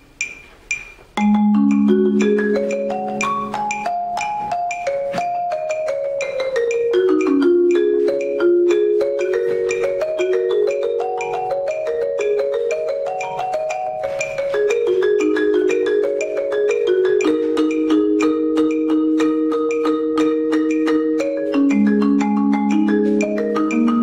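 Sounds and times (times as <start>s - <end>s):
marimba played with mallets: 0.0s - 24.0s.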